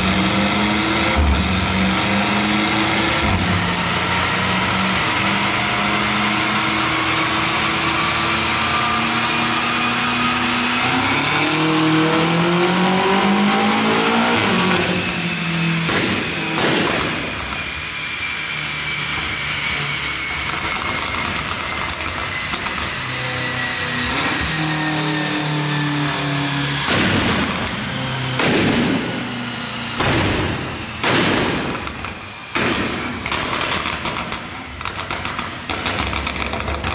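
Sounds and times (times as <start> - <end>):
engine high whine falling in pitch: 0.0 - 36.9
exhaust backfire bangs: 14.3 - 17.6, 26.7 - 36.9.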